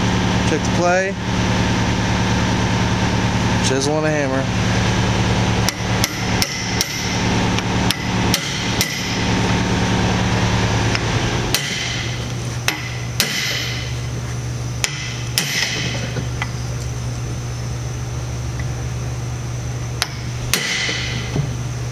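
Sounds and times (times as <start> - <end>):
hammer striking steel chisel: 5.7 - 7.2, 7.9 - 9.2, 11.5 - 14.0, 14.8 - 16.6, 20.0 - 21.4.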